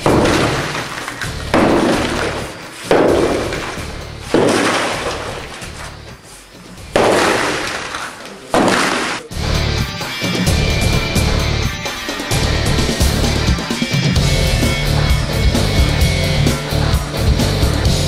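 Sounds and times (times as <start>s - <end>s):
sledgehammer striking concrete blocks: 0.0s - 6.1s, 6.8s - 9.3s.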